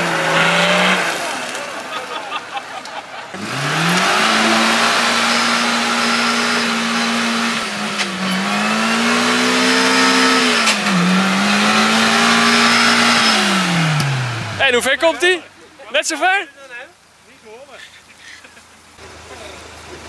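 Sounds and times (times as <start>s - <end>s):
buggy engine revving hard: 0.0s - 1.9s, 3.3s - 15.3s.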